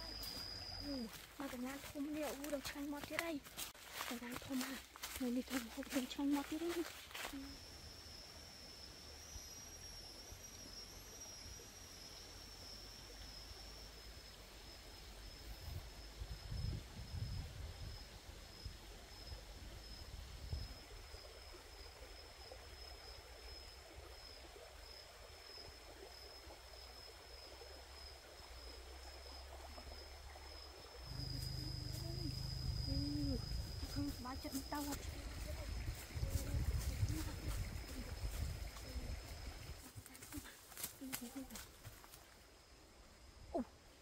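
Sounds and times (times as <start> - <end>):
high-pitched insect drone: 0.0 - 42.8
low wind rumble: 31.1 - 34.4, 35.0 - 39.8.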